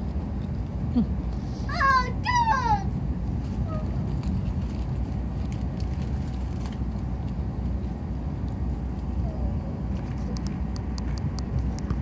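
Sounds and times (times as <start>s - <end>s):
train carriage rumble: 0.0s - 12.0s.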